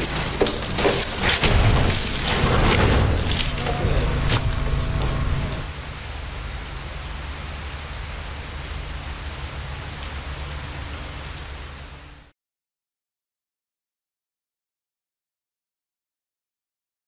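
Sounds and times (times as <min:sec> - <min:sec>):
falling water hiss: 0:00.0 - 0:12.0
low steady hum: 0:00.0 - 0:12.2.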